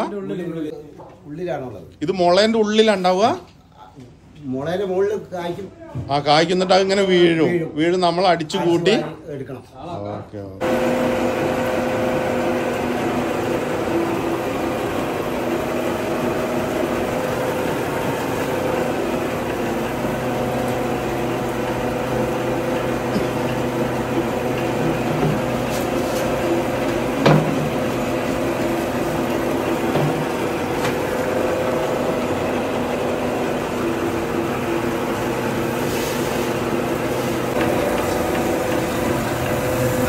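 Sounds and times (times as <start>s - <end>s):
rice huller machine humming: 10.6s - 40.0s.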